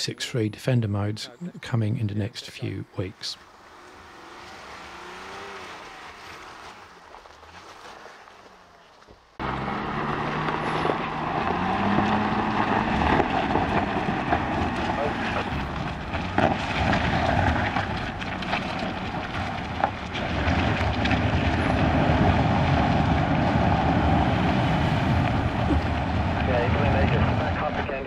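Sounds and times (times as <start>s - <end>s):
engine pulling under load: 3.4s - 28.0s
wheels knocking on stones: 10.4s - 23.2s.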